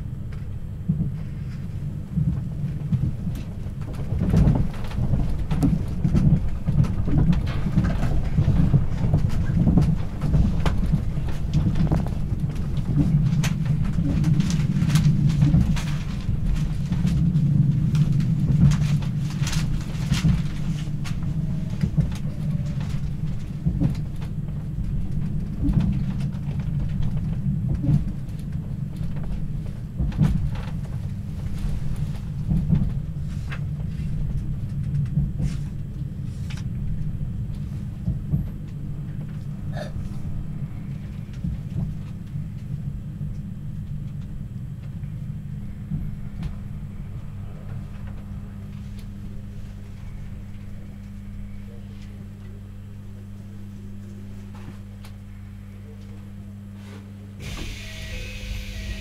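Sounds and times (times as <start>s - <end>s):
train low rumble: 0.0s - 59.0s
wheel clacks and knocks: 2.2s - 35.6s.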